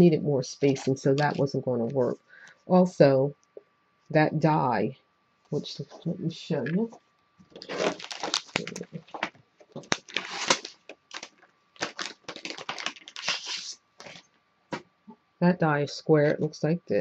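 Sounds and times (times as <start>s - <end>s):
crinkling and rustling: 0.6s - 2.2s, 6.6s - 15.0s.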